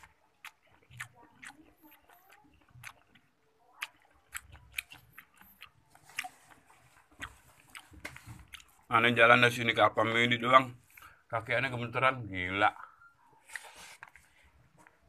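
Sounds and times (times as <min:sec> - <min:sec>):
chewing with wet mouth clicks: 0:00.0 - 0:08.9.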